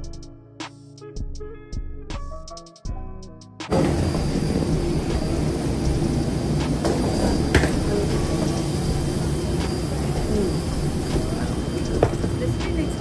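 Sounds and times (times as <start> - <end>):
airliner cabin rumble: 3.7 - 13.0.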